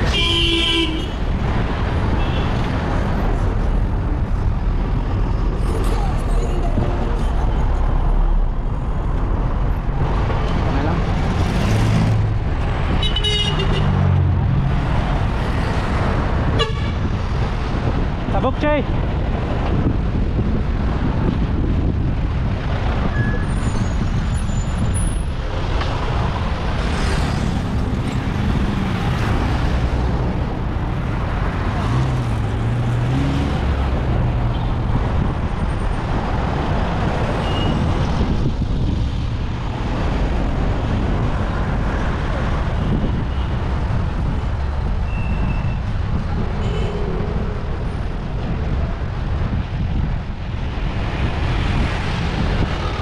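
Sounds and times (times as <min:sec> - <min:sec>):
motor vehicles passing: 0:00.0 - 0:23.2, 0:23.9 - 0:45.0, 0:45.7 - 0:53.0
wind on microphone: 0:18.9 - 0:53.0.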